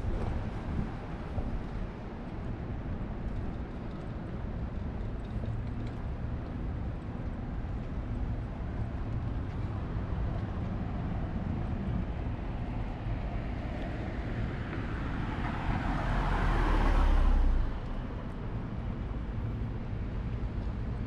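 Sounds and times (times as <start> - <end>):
city street traffic: 0.0 - 21.0
vehicle passing close by: 14.4 - 18.0.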